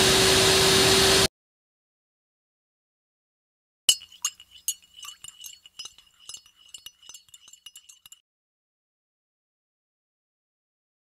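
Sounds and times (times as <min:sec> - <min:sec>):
spoon clinking in a cup: 0:03.9 - 0:08.2.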